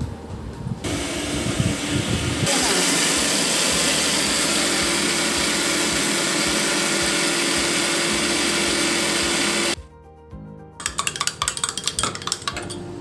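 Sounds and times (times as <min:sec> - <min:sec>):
mixer grinder grinding: 0:00.9 - 0:09.8.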